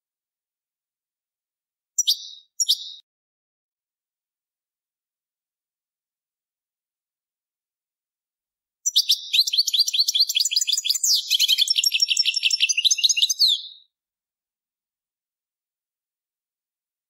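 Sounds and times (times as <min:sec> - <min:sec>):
goldfinch twittering song: 0:02.0 - 0:03.0, 0:08.8 - 0:13.9.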